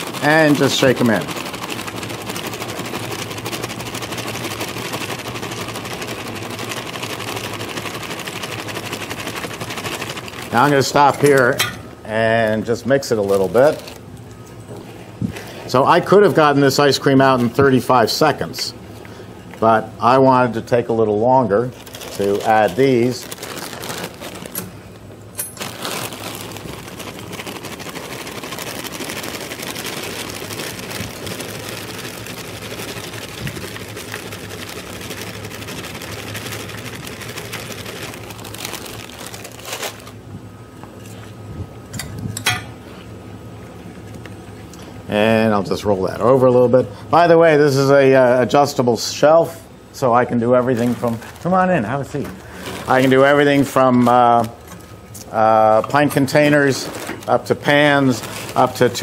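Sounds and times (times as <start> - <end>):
fast even rattle: 0.0 - 11.1
ice cream machine humming: 0.0 - 59.0.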